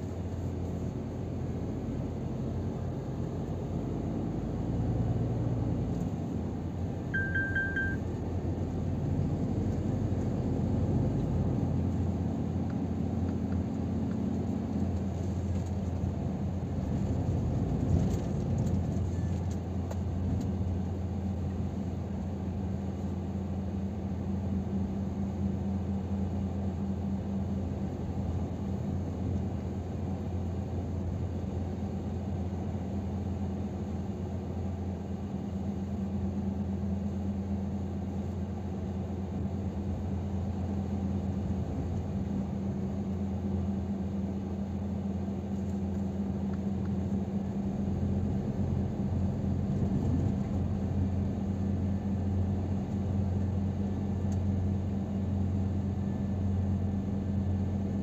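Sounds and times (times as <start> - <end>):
road noise: 0.0 - 21.8
truck engine drone in cab: 0.0 - 58.0.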